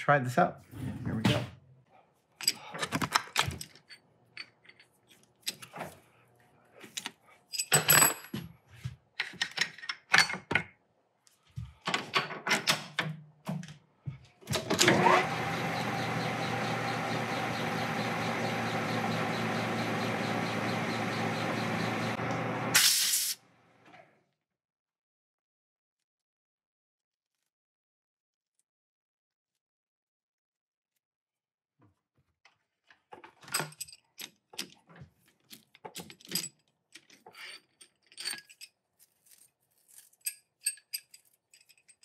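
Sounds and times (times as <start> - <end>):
metal tools clinking and knocking: 2.4 - 5.7, 7.0 - 8.5, 9.2 - 10.7, 33.4 - 34.8, 35.5 - 42.0
metal lathe humming: 14.8 - 22.8.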